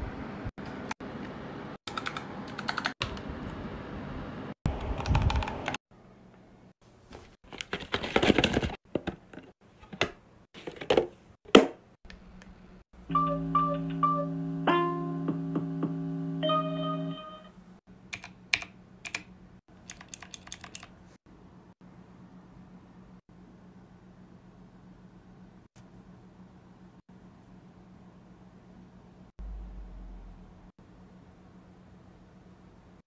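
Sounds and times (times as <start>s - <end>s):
mechanical keyboard clicks: 1.9s - 3.2s, 4.8s - 5.8s, 18.1s - 20.9s.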